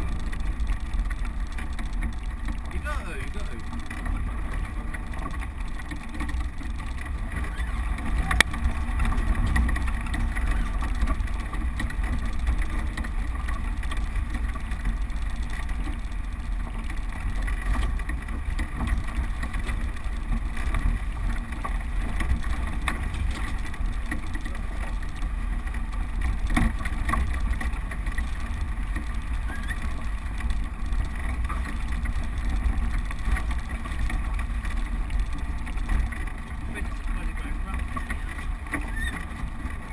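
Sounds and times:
vehicle engine low rumble: 0:00.0 - 0:39.9.

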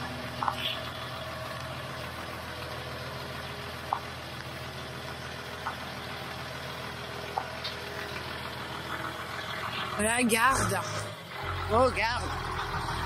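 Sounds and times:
truck engine at low revs: 0:00.0 - 0:13.0.

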